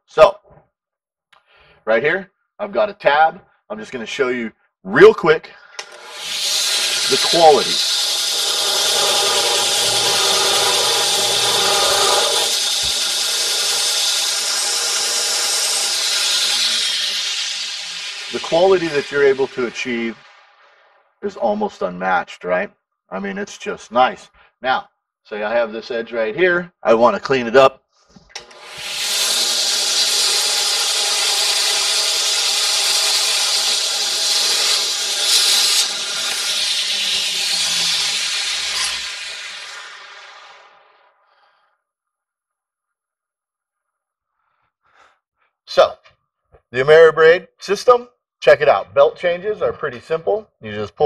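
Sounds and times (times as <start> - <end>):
belt sander grinding metal: 5.8 - 20.4, 28.4 - 40.7.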